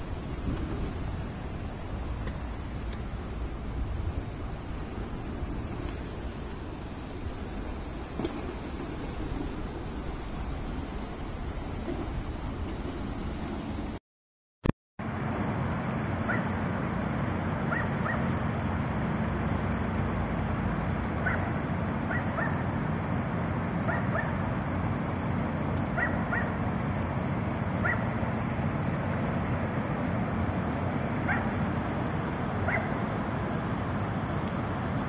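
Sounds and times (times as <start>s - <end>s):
floodwater rushing down a street: 0.0s - 14.0s, 15.0s - 35.0s
dog yipping: 16.3s - 16.5s, 17.7s - 18.2s, 21.2s - 21.5s, 22.1s - 22.6s, 23.9s - 24.4s, 26.0s - 26.6s, 27.8s - 28.2s, 31.3s - 31.6s, 32.6s - 33.0s.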